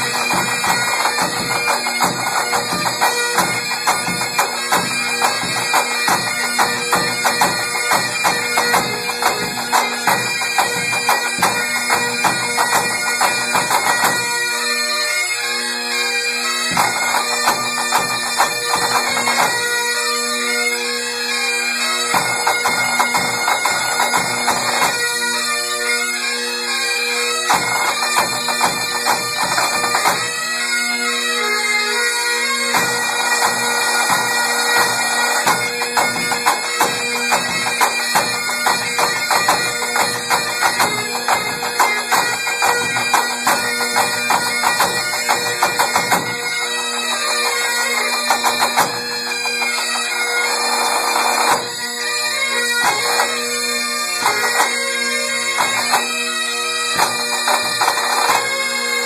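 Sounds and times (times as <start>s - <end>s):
snare and tenor drums beating: 0.0s - 14.3s, 16.7s - 19.6s, 22.1s - 25.0s, 27.5s - 30.3s, 32.7s - 49.9s, 52.8s - 53.4s, 54.2s - 54.8s, 55.5s - 56.1s, 56.9s - 58.5s
bagpipes playing a tune: 0.0s - 59.0s.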